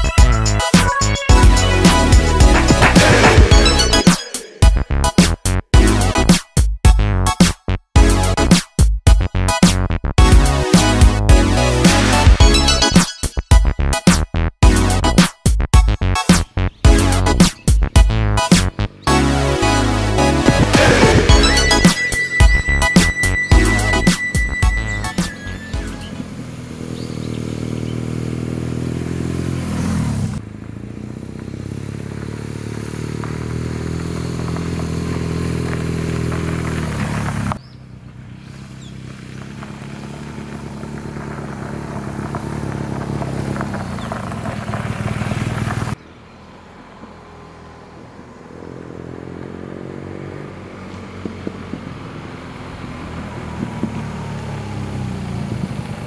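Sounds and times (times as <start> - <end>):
motorcycle engine passing: 1.6 - 4.8, 18.8 - 56.0.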